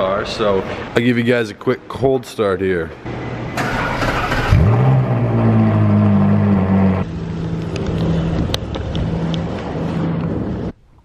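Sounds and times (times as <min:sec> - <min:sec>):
car engine starting and revving: 0:03.6 - 0:10.2.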